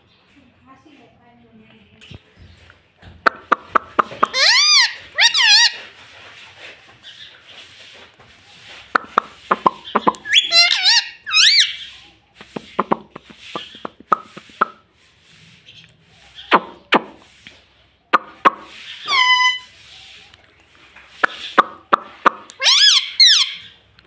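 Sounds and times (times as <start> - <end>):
parakeet chattering: 3.3 - 5.8, 9.5 - 11.9, 18.2 - 19.6, 21.3 - 23.7
sharp parakeet calls: 3.4 - 5.9, 9.0 - 12.0, 18.2 - 19.8, 21.2 - 23.8
parakeet whistles: 4.3 - 5.8, 10.2 - 11.8, 19.0 - 19.6, 22.6 - 23.7.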